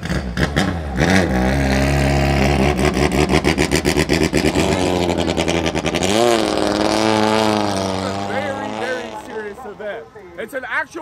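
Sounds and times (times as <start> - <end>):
boat engine running hard: 2.4 - 9.3.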